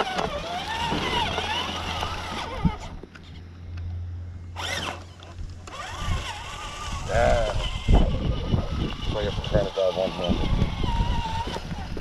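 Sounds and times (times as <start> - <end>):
toy truck electric motor whining: 0.0 - 3.2, 4.5 - 12.0.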